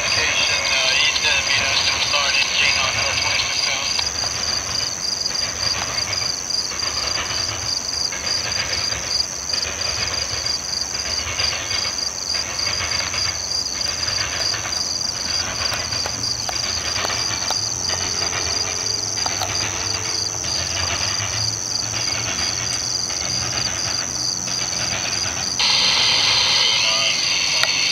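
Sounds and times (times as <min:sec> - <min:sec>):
train wheels hammering over rails: 0:00.0 - 0:27.9
high-pitched drone: 0:15.2 - 0:27.9.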